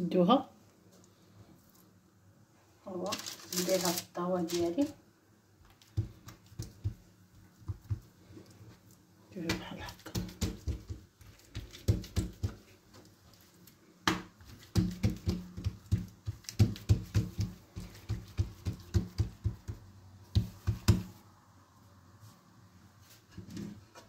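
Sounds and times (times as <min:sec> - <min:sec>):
hands slapping dough: 0:05.6 - 0:08.8, 0:09.4 - 0:21.2.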